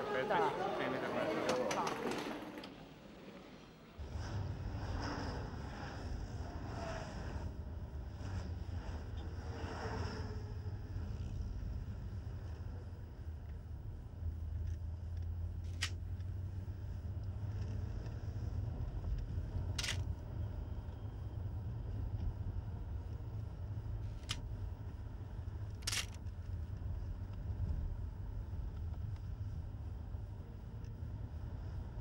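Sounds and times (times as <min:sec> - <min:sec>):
camera shutter clicking: 0:19.8 - 0:20.0, 0:25.8 - 0:26.2.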